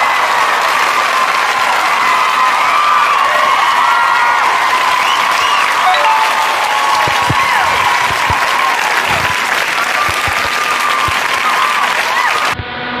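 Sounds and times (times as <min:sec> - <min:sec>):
crowd applauding and cheering: 0:00.0 - 0:12.6
whistles: 0:05.0 - 0:06.2.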